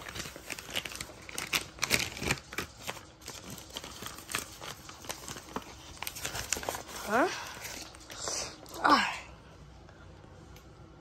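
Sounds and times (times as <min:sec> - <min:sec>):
paper mailer crinkling: 0:00.0 - 0:08.2.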